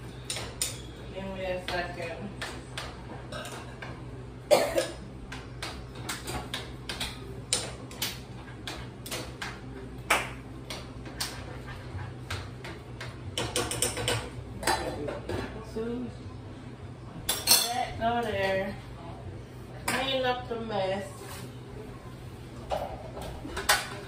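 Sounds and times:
utensils and dishes clicking: 12.3 - 15.1.

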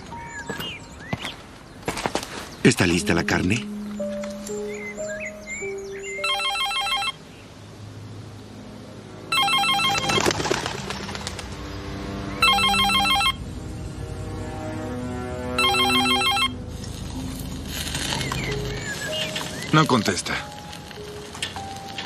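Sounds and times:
warbling phone ring tone: 6.2 - 7.2, 9.3 - 10.2, 12.4 - 13.4, 15.6 - 16.6.

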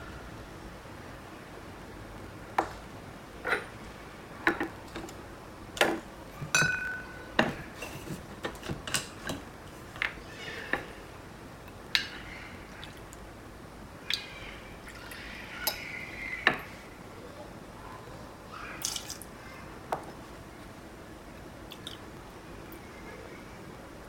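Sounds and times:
glass and metal barware clinking: 6.4 - 9.4.

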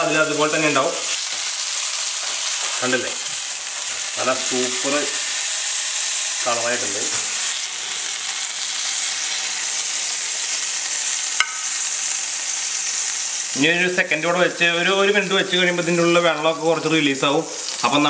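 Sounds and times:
oil sizzling in frying pan: 0.0 - 18.0.

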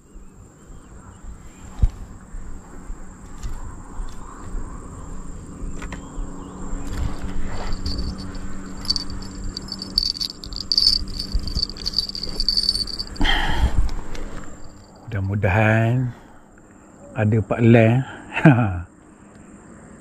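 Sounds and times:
insects buzzing: 0.0 - 17.0
pulsing insect trill: 7.6 - 16.0.

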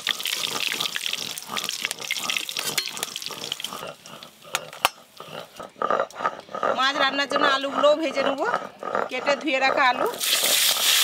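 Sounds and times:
hot oil sizzling and crackling: 0.0 - 5.2, 10.1 - 11.0.

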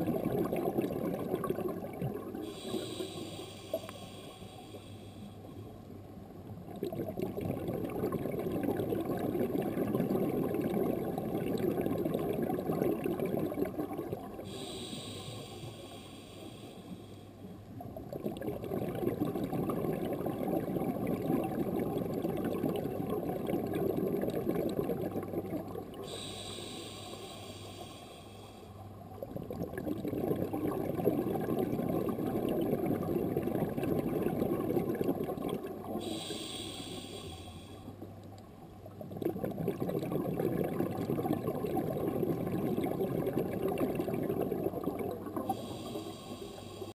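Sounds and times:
bubbling underwater exhalations: 0.0 - 3.0, 6.7 - 15.1, 18.0 - 26.3, 29.1 - 36.7, 38.9 - 45.9
regulator hiss: 2.5 - 5.5, 14.5 - 17.4, 26.0 - 28.7, 36.0 - 37.9, 45.5 - 46.9.

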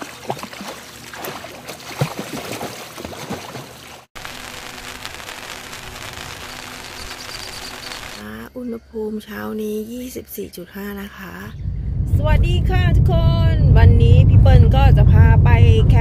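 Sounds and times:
water lapping and splashing: 0.0 - 4.1.

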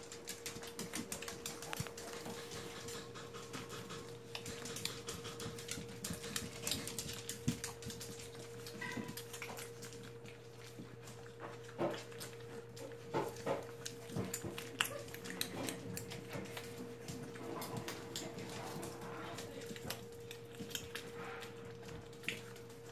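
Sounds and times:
puppies suckling wet clicking: 0.0 - 22.9.

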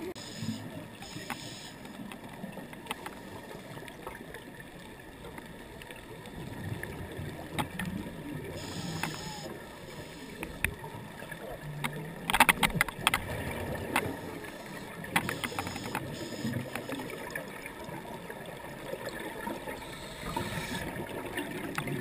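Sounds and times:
sharp clicks: 8.7 - 9.4, 15.1 - 16.2
diver inhaling through regulator: 19.8 - 21.0.

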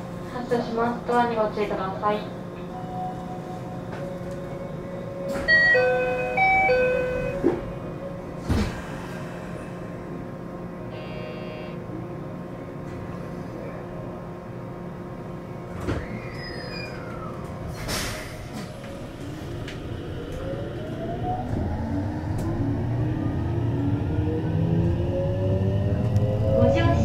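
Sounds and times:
train door chime: 2.7 - 7.7.

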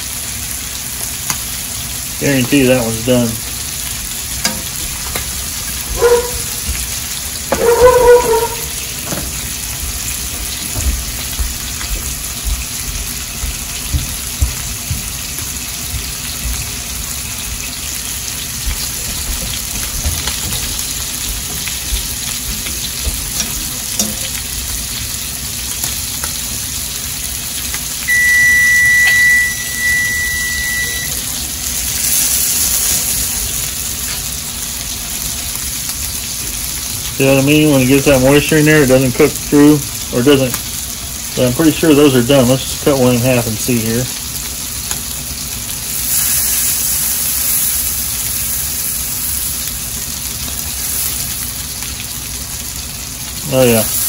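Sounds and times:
food sizzling in frying pan: 0.0 - 54.0
fork knocking against pan: 4.4 - 5.2, 23.1 - 24.3
high beep: 28.1 - 31.2.

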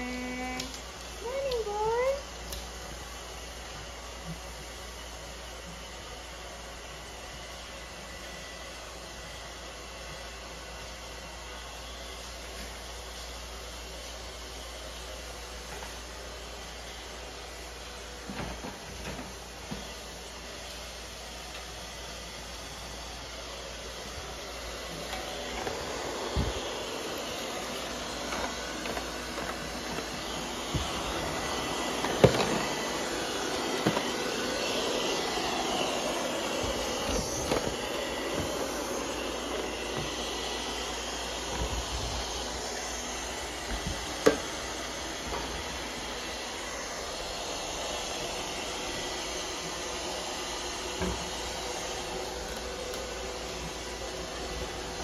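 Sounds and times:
robot vacuum whirring: 18.2 - 55.0.

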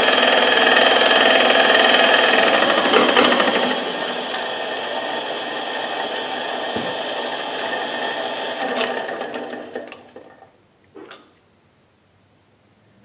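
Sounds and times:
drill boring metal: 0.0 - 10.3
lathe running: 0.0 - 10.4.

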